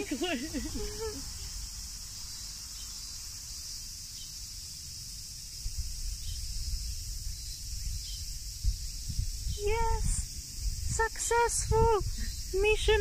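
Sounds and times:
cicadas buzzing chorus: 0:00.0 - 0:13.0
wind on microphone: 0:05.5 - 0:13.0.

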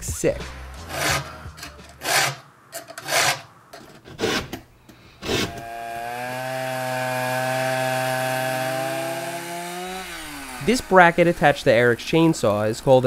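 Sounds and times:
chainsaw cutting log: 0:00.9 - 0:01.4, 0:02.0 - 0:02.4, 0:03.0 - 0:03.4, 0:05.2 - 0:11.8
file on chainsaw chain: 0:02.0 - 0:02.4, 0:03.0 - 0:03.4, 0:05.2 - 0:11.6.

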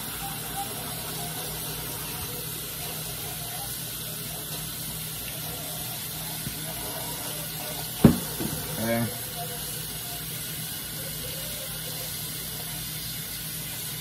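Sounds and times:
tap running into sink: 0:08.0 - 0:08.8.

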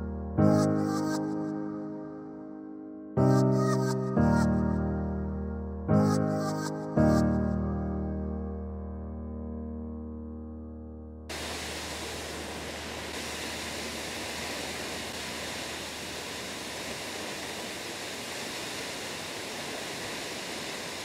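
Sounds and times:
background music: 0:00.0 - 0:11.2
waterfall rushing onto rock: 0:11.3 - 0:21.0.

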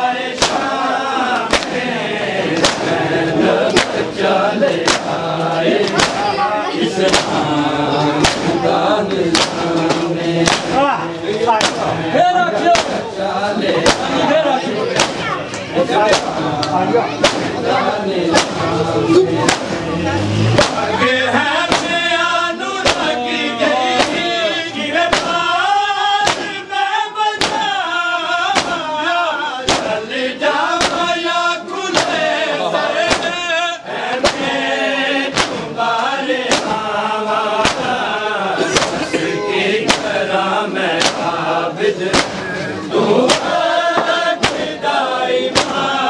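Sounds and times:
men chanting: 0:00.0 - 0:46.0
hands striking chests: 0:00.4 - 0:00.8, 0:01.4 - 0:01.9, 0:02.5 - 0:03.0, 0:03.6 - 0:04.1, 0:04.7 - 0:06.4, 0:07.0 - 0:07.5, 0:08.2 - 0:08.6, 0:09.3 - 0:11.9, 0:12.7 - 0:13.1, 0:13.8 - 0:14.2, 0:14.9 - 0:17.6, 0:18.3 - 0:18.8, 0:19.4 - 0:19.8, 0:20.5 - 0:21.0, 0:21.7 - 0:22.0, 0:22.8 - 0:23.2, 0:23.9 - 0:24.4, 0:25.1 - 0:25.5, 0:26.2 - 0:26.6, 0:27.4 - 0:27.8, 0:28.4 - 0:28.9, 0:29.6 - 0:30.0, 0:30.8 - 0:31.1, 0:31.9 - 0:32.3, 0:33.0 - 0:33.4, 0:34.2 - 0:34.6, 0:35.2 - 0:35.8, 0:36.4 - 0:36.9, 0:37.6 - 0:38.0, 0:38.6 - 0:39.1, 0:39.8 - 0:40.2, 0:41.0 - 0:41.4, 0:42.1 - 0:44.8, 0:45.5 - 0:46.0.

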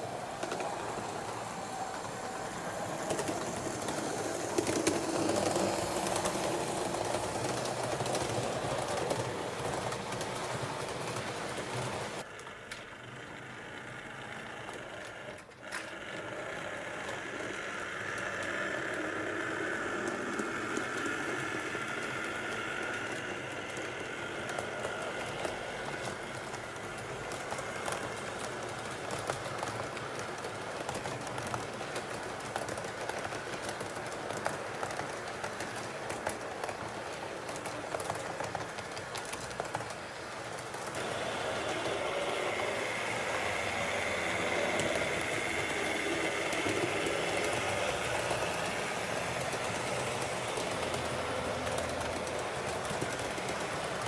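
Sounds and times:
wheels clicking on rails: 0:00.0 - 0:54.0
electric motor whine: 0:41.0 - 0:50.2.

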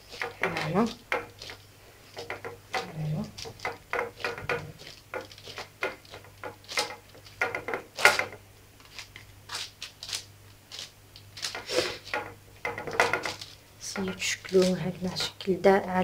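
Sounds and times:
hands patting dough: 0:00.0 - 0:15.4
paper rustling: 0:12.9 - 0:15.4.

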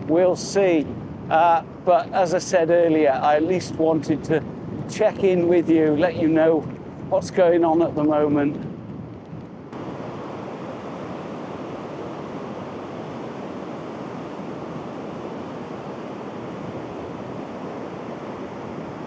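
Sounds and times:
blustery wind: 0:00.0 - 0:19.0
sea surf breaking: 0:09.8 - 0:19.0.

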